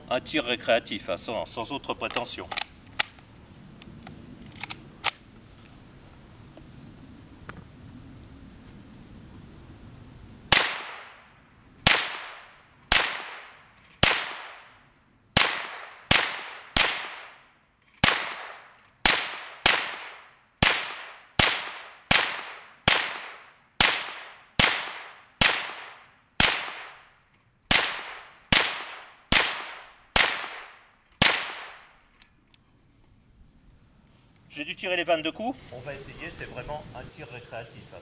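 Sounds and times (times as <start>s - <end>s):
rifle shots: 10.5s - 14.7s, 15.4s - 27.1s, 27.7s - 32.0s.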